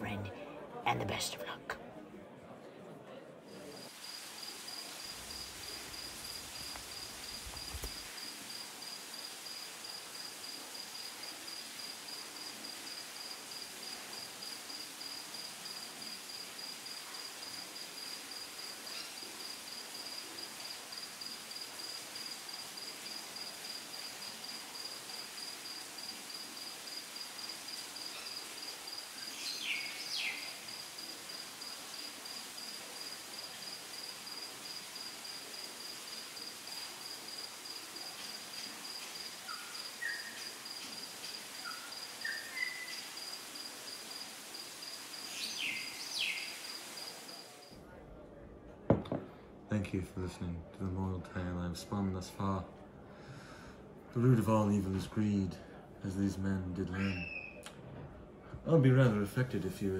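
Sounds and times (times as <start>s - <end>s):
crickets chirping: 3.5s - 47.8s.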